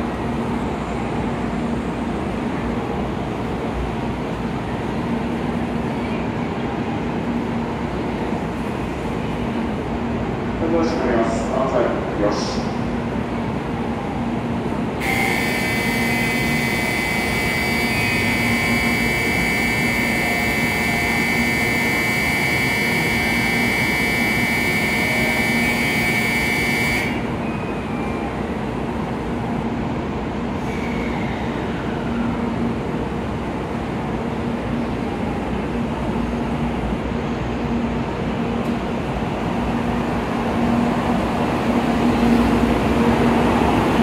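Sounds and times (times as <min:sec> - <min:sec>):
train hum: 0:00.0 - 0:44.0
electronic departure bell ringing: 0:15.0 - 0:27.2.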